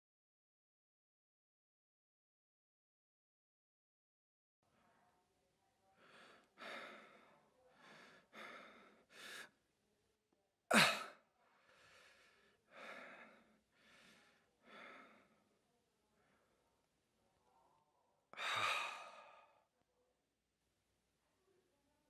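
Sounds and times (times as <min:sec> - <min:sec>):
man sighing and huffing: 0:10.7 - 0:11.1.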